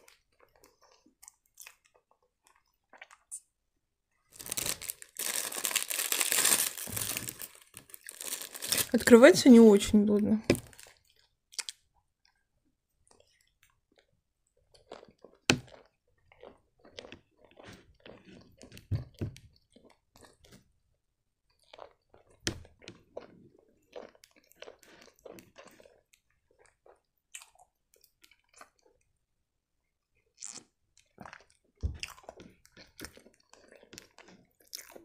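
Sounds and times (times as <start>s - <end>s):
chewing with wet mouth noises: 0.0s - 3.5s, 13.0s - 18.9s, 21.5s - 29.1s, 30.2s - 35.0s.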